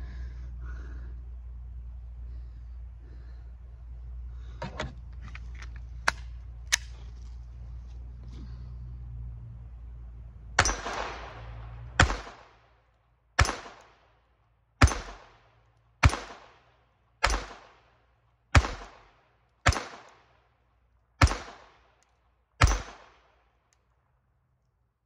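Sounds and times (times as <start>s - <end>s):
pistol shots with echo: 10.6s - 12.6s, 13.4s - 14.1s, 14.8s - 17.9s, 18.5s - 20.3s, 21.2s - 22.0s, 22.6s - 23.4s.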